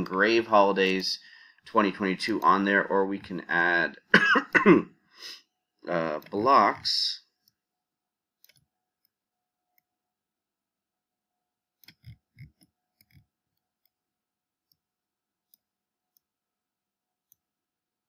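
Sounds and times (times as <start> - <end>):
computer mouse clicks: 11.8 - 14.0.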